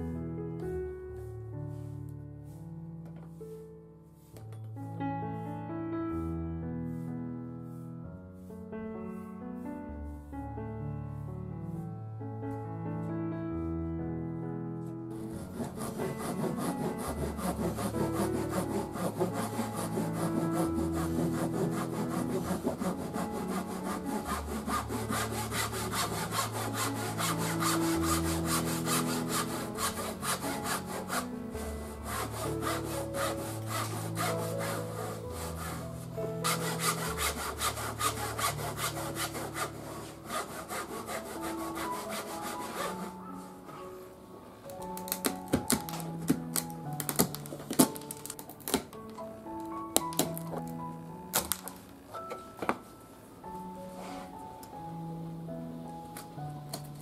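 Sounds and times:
soft piano music: 0.0 - 57.0
handsaw sawing thin wood: 15.1 - 43.2.

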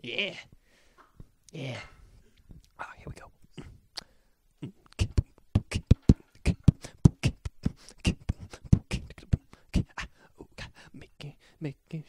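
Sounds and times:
person beatboxing: 4.6 - 10.8.

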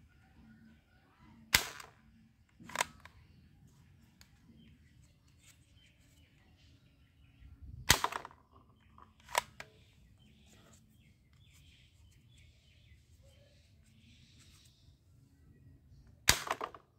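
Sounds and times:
plastic toy guns clicking: 2.6 - 3.1, 7.9 - 8.4, 9.1 - 9.7.

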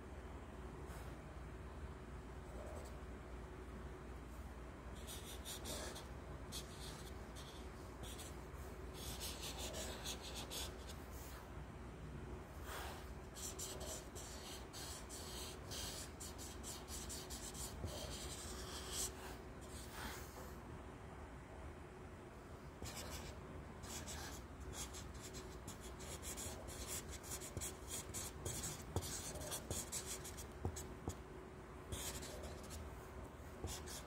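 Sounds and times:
faint steady hum: 0.0 - 34.0
marker scratching on paper: 5.0 - 11.0, 13.3 - 20.2, 22.8 - 31.2, 31.9 - 32.8, 33.6 - 34.0.

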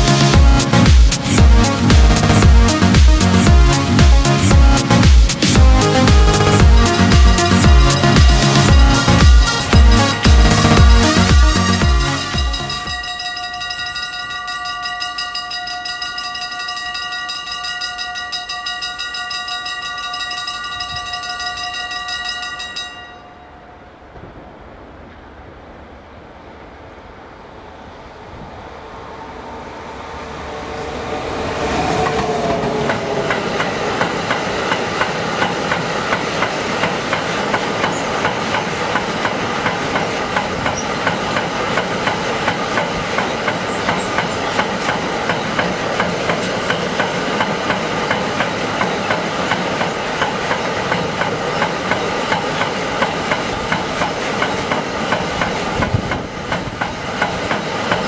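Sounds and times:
electric locomotive whine: 0.0 - 58.0
train rumbling by: 0.0 - 58.0
wheels clicking over rail joints: 31.4 - 58.0.

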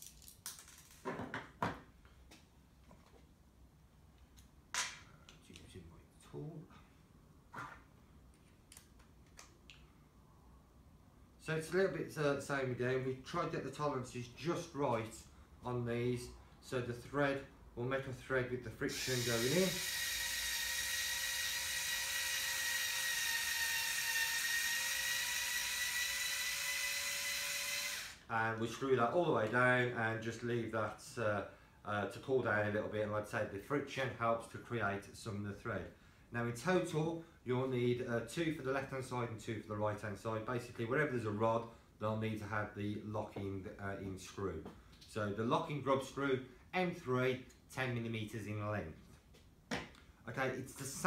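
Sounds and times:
electric screwdriver whining: 18.9 - 28.2.

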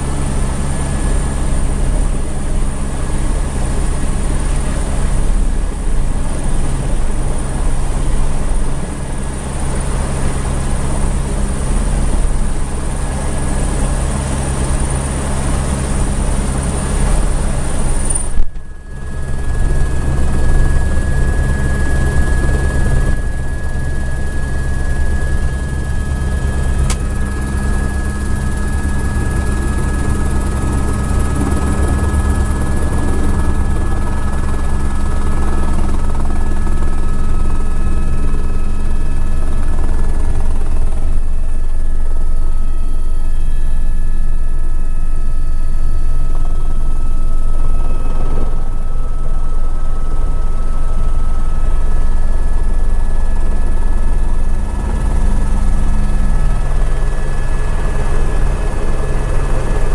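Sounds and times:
helicopter rotor beat: 0.0 - 59.9
turbine whine: 0.0 - 59.9
sharp click: 26.9 - 27.1.

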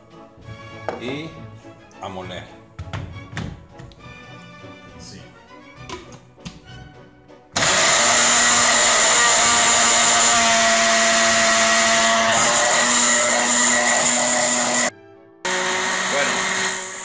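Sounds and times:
blender motor running: 7.6 - 14.9, 15.5 - 17.0.

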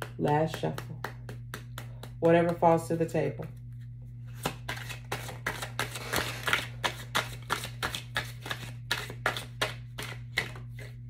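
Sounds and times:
cards being shuffled: 3.4 - 11.0.

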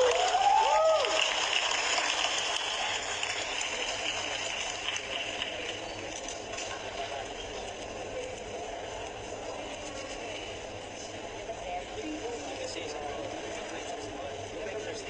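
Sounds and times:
crowd noise: 0.0 - 15.0.

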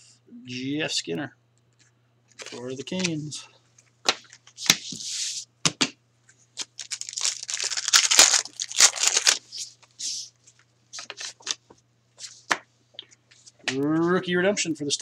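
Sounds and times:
cards rustling: 2.3 - 3.4, 6.6 - 12.6
card wrapper tearing and crinkling: 6.6 - 9.8.

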